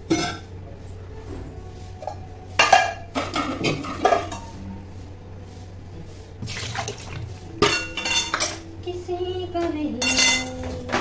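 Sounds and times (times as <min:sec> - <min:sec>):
metal pots and plates clattering: 0:00.0 - 0:00.5, 0:02.0 - 0:04.6, 0:07.6 - 0:08.7, 0:10.0 - 0:11.0.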